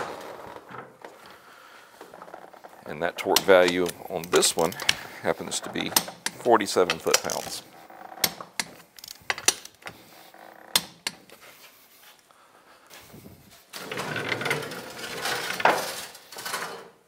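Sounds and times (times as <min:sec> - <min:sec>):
floor jack scraping on steel: 0:13.7 - 0:16.9.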